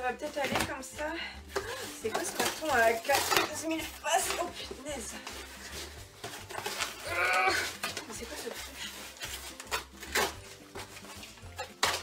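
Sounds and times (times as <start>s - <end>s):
cardboard tearing and rustling: 1.8s - 12.0s.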